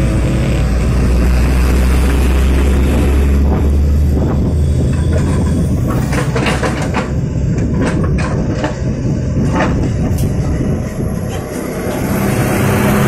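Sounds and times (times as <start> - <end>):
heavy diesel engines: 0.0 - 13.0
clunks and rattles: 1.9 - 12.2.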